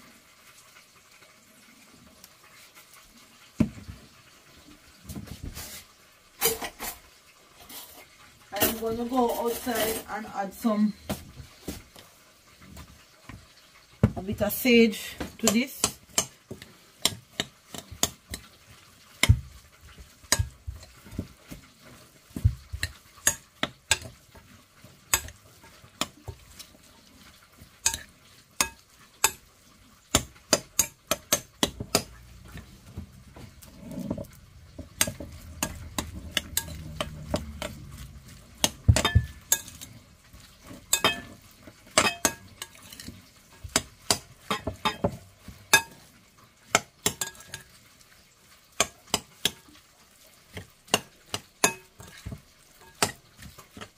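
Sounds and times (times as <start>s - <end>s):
spoon stirring vegetables: 7.6s - 53.9s.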